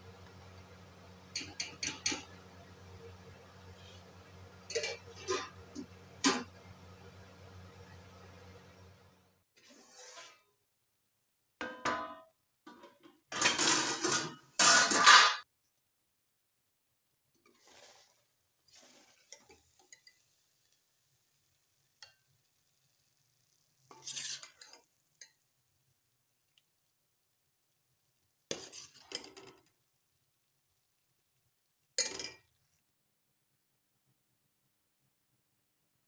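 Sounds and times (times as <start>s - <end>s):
metal ladle scraping a pot: 4.7s - 6.5s, 9.6s - 10.4s, 23.9s - 24.9s, 28.5s - 29.5s.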